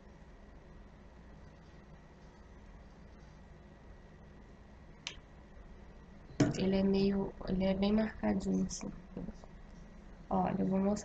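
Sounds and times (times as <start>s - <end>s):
faint room hiss: 0.0s - 11.0s.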